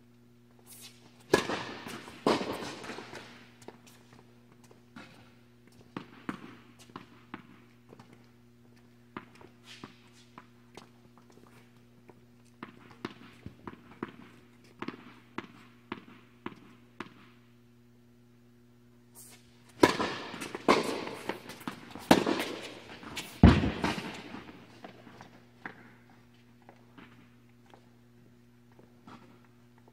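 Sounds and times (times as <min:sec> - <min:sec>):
steady low hum: 0:00.0 - 0:29.9
tennis racket hitting ball: 0:00.7 - 0:03.4, 0:19.7 - 0:25.0
tennis ball bouncing: 0:01.2 - 0:03.8, 0:12.6 - 0:17.3, 0:19.7 - 0:25.8.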